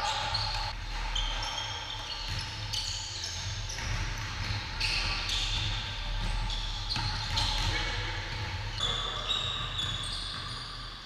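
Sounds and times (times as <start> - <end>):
sneakers squeaking on hardwood: 0.0 - 11.0
basketball bouncing: 2.3 - 2.5, 3.4 - 8.8.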